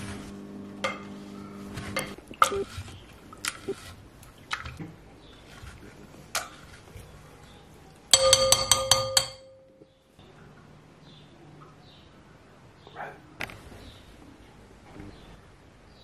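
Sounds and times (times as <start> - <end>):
knife clinking glass bowl: 8.1 - 9.8
glass bowl ringing: 8.1 - 9.9.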